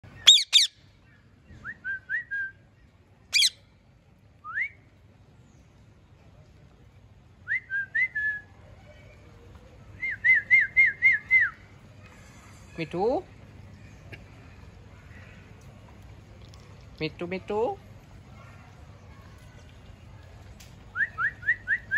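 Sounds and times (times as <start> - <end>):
parakeet shrill screeches: 0.2 - 0.7
parakeet whistled chirps: 0.2 - 0.8, 3.4 - 3.6.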